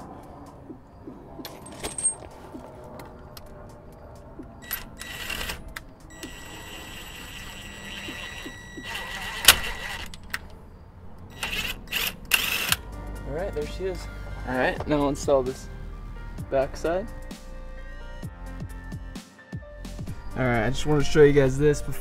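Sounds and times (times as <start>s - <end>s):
metal clinks and knocks: 1.4s - 3.6s.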